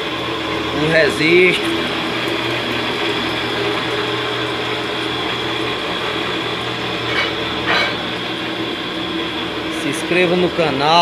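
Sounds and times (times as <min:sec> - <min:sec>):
belt driven stirring machine humming: 0:00.0 - 0:11.0.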